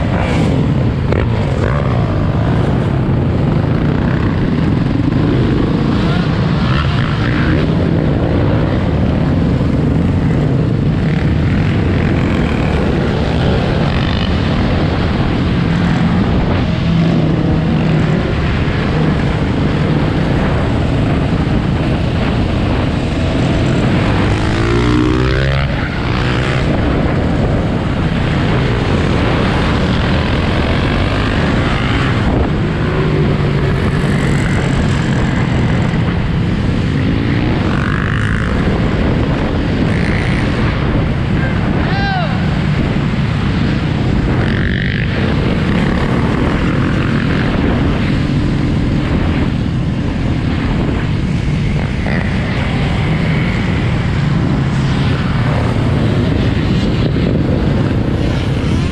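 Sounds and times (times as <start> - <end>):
surrounding dirt bikes and quads: 0.0 - 58.9
dirt bike engine revving: 10.0 - 27.3.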